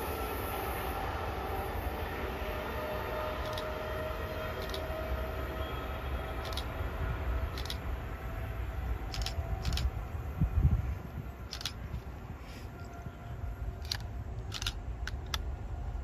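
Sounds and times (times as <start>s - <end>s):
wind rumble on microphone: 9.1s - 13.5s.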